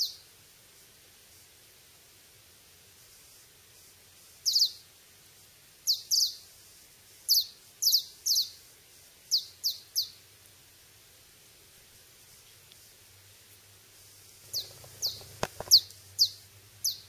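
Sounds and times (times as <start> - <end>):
high-pitched chirps: 14.5 - 17.0.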